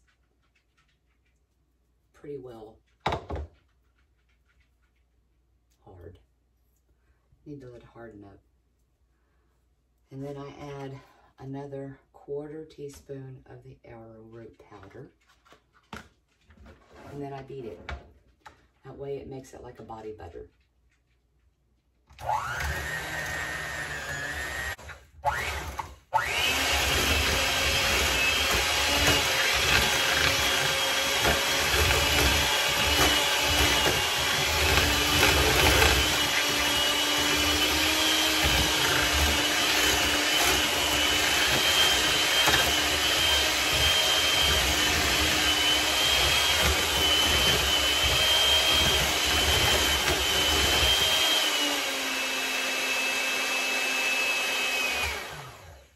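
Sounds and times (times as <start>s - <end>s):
electric hand mixer whining: 22.2s - 55.9s.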